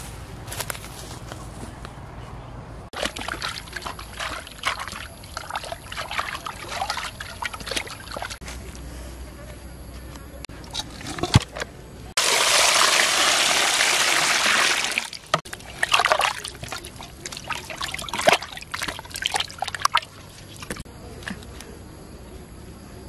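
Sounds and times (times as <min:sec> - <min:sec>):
splashing and scrubbing in water: 0:02.9 - 0:08.4, 0:12.2 - 0:21.5
water pouring into metal pot: 0:12.2 - 0:20.2.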